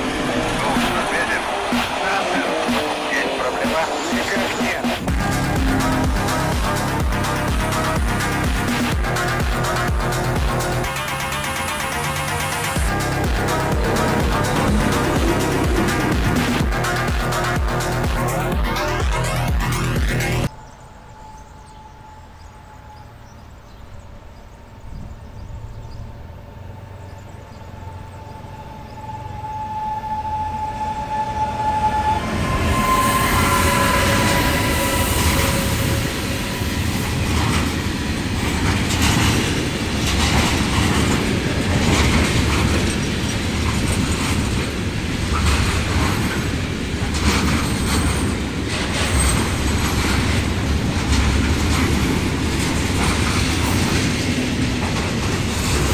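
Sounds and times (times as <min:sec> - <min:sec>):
freight train loud rumble: 0:00.0 - 0:55.9
train high whine: 0:00.0 - 0:55.9
wagon wheels clickety-clack: 0:38.4 - 0:55.9.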